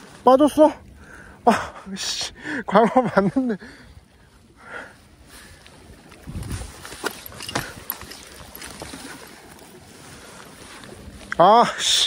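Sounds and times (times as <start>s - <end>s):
wind rumbling on microphone: 3.8s - 11.4s.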